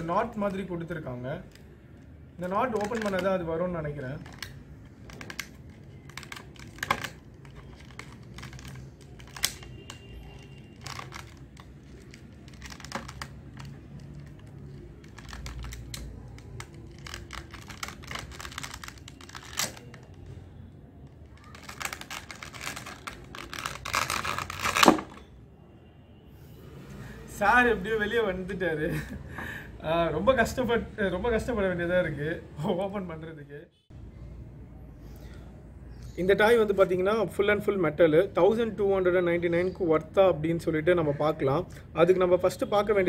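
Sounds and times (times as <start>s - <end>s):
plastic blister tray crackling: 2.4s - 25.2s.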